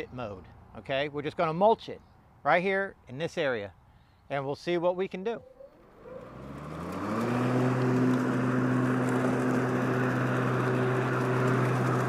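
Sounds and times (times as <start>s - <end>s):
electric lawn mower running: 5.7s - 12.0s.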